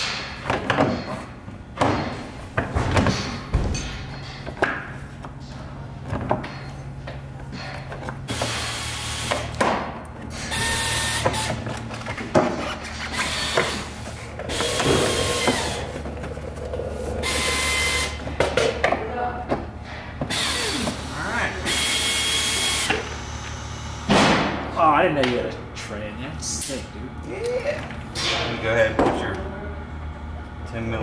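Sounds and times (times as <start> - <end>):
power tool bursts: 14.5 - 15.9, 17.2 - 18.2.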